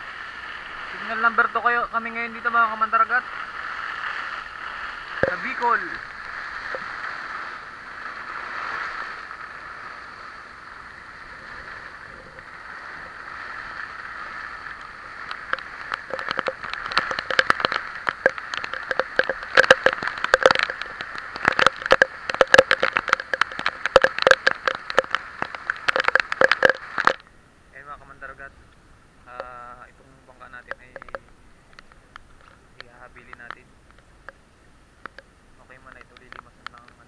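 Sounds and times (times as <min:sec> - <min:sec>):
heavy rain and wind: 0:00.0 - 0:37.0
raindrops tapping on camera: 0:00.9 - 0:07.2, 0:11.4 - 0:27.3, 0:30.3 - 0:34.4, 0:35.0 - 0:37.0.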